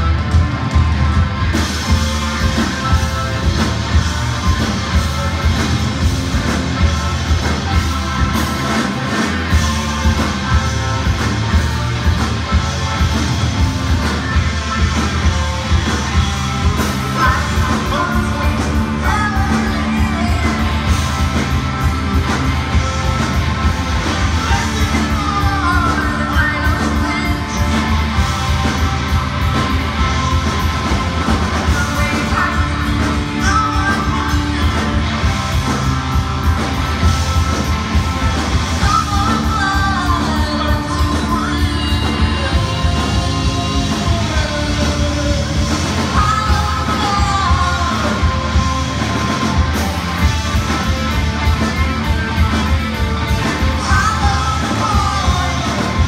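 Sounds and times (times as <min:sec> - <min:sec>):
heavy rock band playing: 0:00.0 - 0:56.0
person singing: 0:17.0 - 0:21.0, 0:24.4 - 0:27.9, 0:31.6 - 0:35.3, 0:38.8 - 0:49.0, 0:53.4 - 0:56.0.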